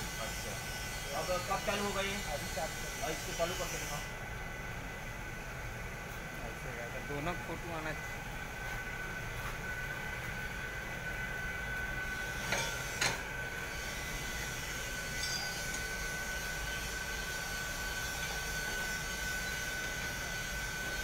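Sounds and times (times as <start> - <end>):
machinery drone with high whine: 0.0 - 21.0.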